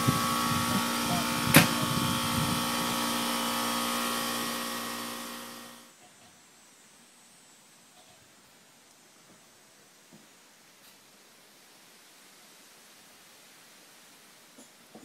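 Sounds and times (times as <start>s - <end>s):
machine motor humming: 0.0s - 5.9s.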